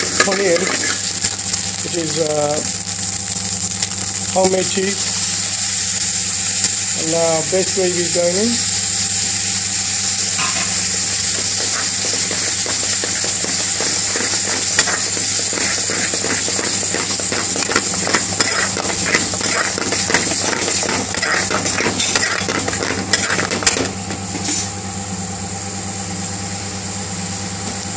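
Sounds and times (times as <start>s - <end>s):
spoon scraping and knocking pan: 0.0s - 1.4s, 10.4s - 24.5s
curry sizzling in metal pan: 0.0s - 24.7s.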